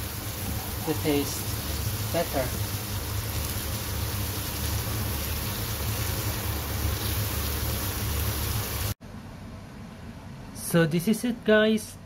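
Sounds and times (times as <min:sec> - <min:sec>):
vegetables sizzling in frying pan: 0:00.0 - 0:09.0.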